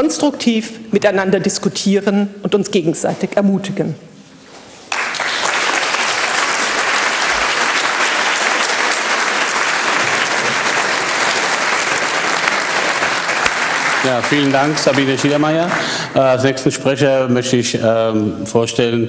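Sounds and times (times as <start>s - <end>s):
audience applauding: 4.9s - 16.5s.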